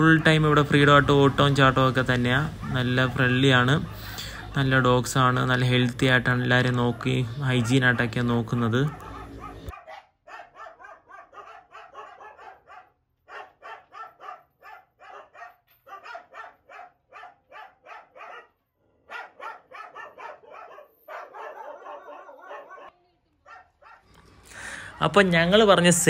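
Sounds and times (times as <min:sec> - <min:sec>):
dog barking: 0:02.4 - 0:04.6, 0:06.6 - 0:24.1.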